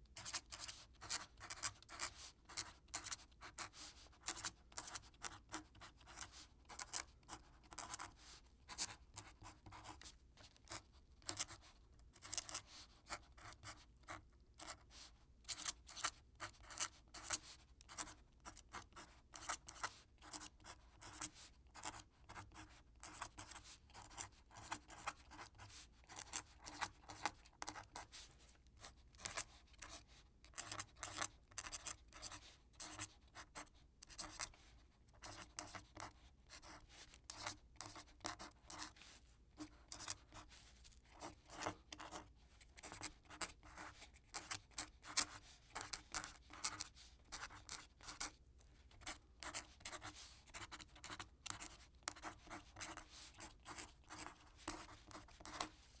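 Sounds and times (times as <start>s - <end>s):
quill pen scratching on paper: 0.1s - 55.8s.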